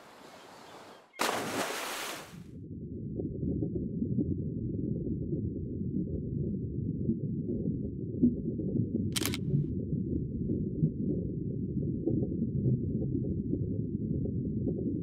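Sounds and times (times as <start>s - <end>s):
loud splash into water: 1.2s - 2.4s
muffled underwater rumble: 2.6s - 15.0s.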